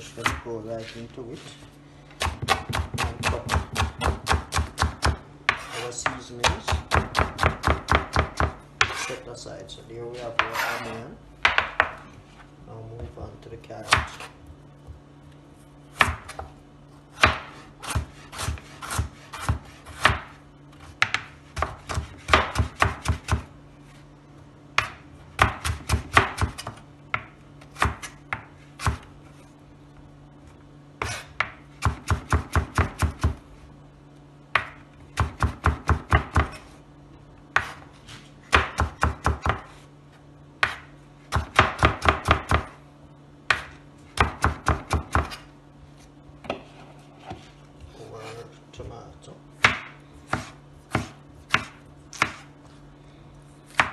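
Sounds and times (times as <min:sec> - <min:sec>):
knife chopping on cutting board: 0:02.2 - 0:09.1, 0:10.2 - 0:12.0, 0:13.8 - 0:14.4, 0:15.9 - 0:23.5, 0:24.8 - 0:29.1, 0:31.0 - 0:33.4, 0:34.6 - 0:36.7, 0:37.5 - 0:39.8, 0:40.6 - 0:42.8, 0:43.5 - 0:45.5, 0:49.6 - 0:52.5, 0:53.7 - 0:53.9.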